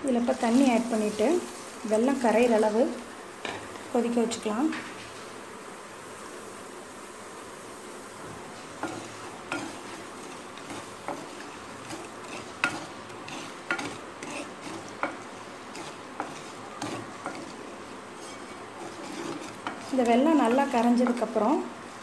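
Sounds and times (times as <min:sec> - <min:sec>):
faint hiss: 0:00.0 - 0:22.0.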